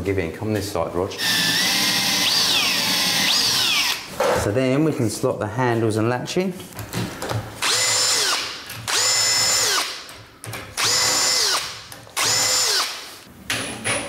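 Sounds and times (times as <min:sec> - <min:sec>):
cordless drill whining: 0:01.2 - 0:04.1, 0:07.6 - 0:09.9, 0:10.8 - 0:13.3.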